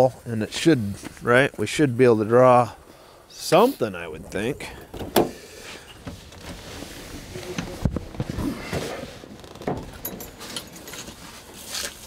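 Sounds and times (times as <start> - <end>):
knocks and clicks at car door: 4.9 - 5.4
clothing rustle: 5.2 - 12.0.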